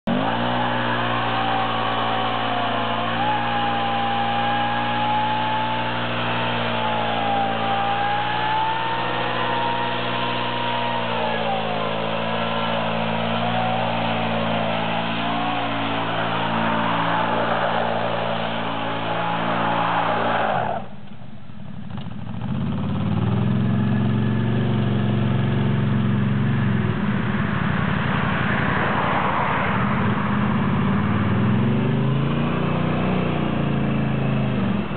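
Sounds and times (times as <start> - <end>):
atv engine revving: 0.0 - 20.6, 21.8 - 27.1, 30.5 - 34.9
spinning tyres hissing: 0.1 - 21.0.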